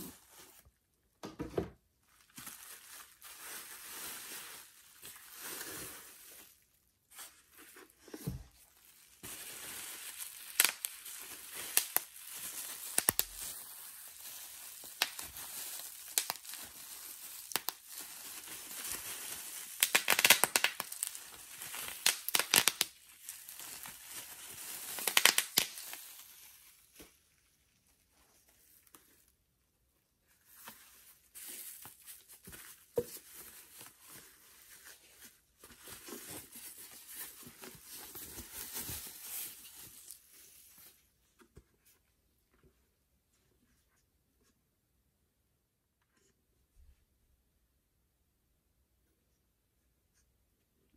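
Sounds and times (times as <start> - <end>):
bubble wrap crinkling: 2.0 - 29.4, 30.2 - 41.4.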